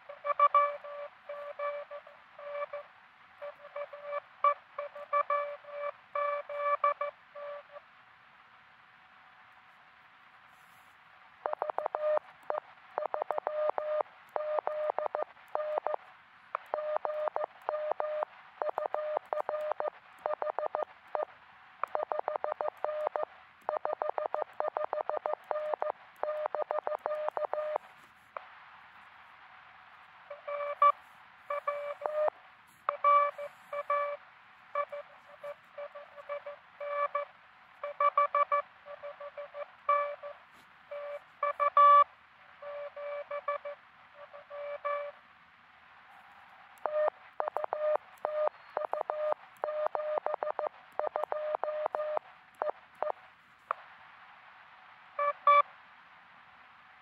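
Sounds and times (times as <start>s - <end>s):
buzzy morse signal: 0.1s - 7.9s, 21.9s - 28.1s, 30.3s - 45.2s
morse code beeps: 0.2s - 7.8s, 11.4s - 16.0s, 16.7s - 21.3s, 21.9s - 27.8s, 30.3s - 32.3s, 32.9s - 34.2s, 34.8s - 42.0s, 42.6s - 45.1s, 46.8s - 52.2s.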